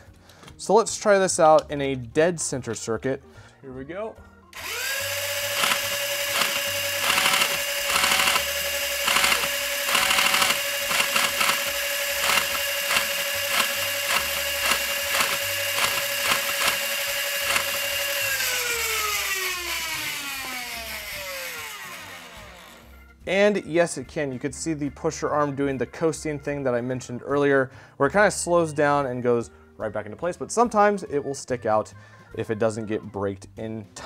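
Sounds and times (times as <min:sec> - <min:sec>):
flywheel motors whining: 0:04.6 - 0:23.0
motorized pusher clacking: 0:04.6 - 0:23.0.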